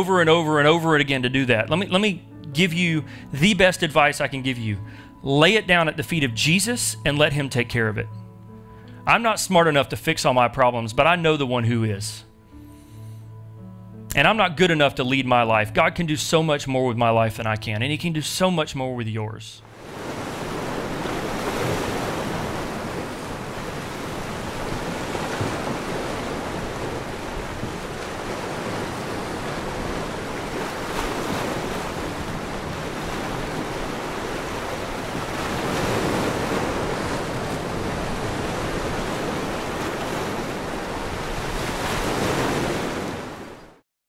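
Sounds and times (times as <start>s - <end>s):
waves breaking on shore: 0.0s - 4.2s, 19.6s - 43.8s.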